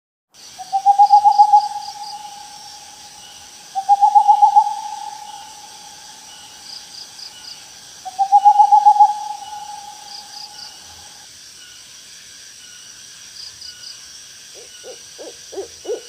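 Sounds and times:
owl hooting: 0.6s - 11.2s, 14.6s - 16.0s.

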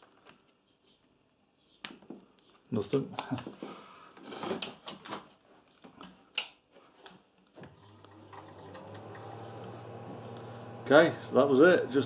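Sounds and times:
welder mains hum: 7.8s - 12.0s.

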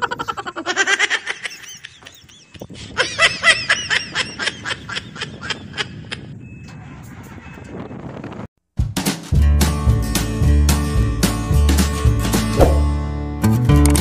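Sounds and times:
person laughing: 0.0s - 6.4s.

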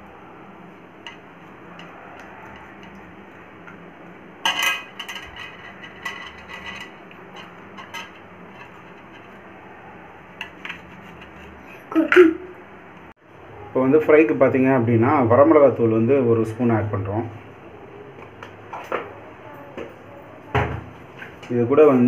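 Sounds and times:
faint steady hum: 0.0s - 21.7s
metal clatter: 4.4s - 9.4s
knife scraping metal plate: 4.5s - 9.4s, 10.4s - 11.8s.

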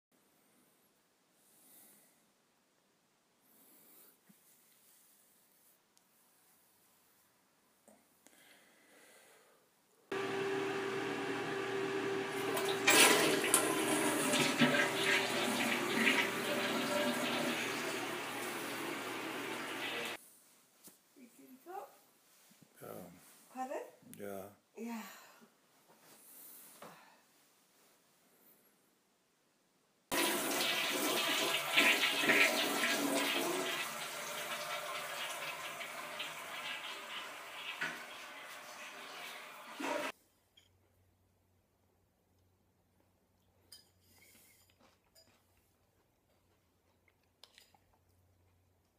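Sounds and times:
toilet flushing: 10.1s - 20.2s, 30.1s - 40.1s.

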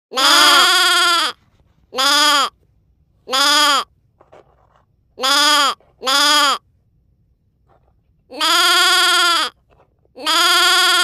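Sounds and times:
short bleats: 0.1s - 2.6s, 3.3s - 3.9s, 5.2s - 6.6s, 8.3s - 9.6s, 10.2s - 11.0s.

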